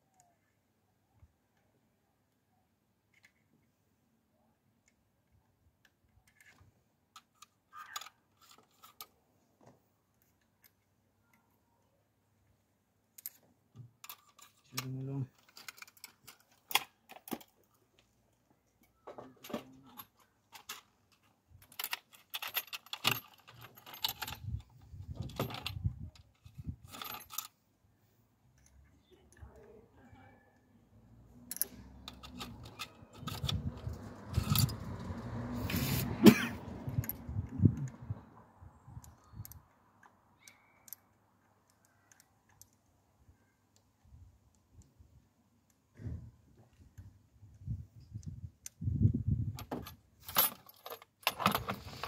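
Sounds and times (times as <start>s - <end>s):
metal tools clinking and rattling: 19.3s - 24.6s, 25.2s - 25.8s, 26.4s - 27.5s, 31.5s - 34.9s, 49.6s - 52.0s.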